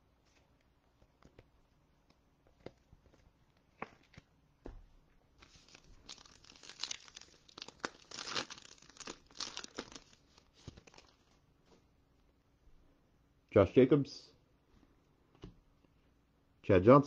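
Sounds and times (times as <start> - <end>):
foil wrapper tearing and crinkling: 5.4 - 11.2.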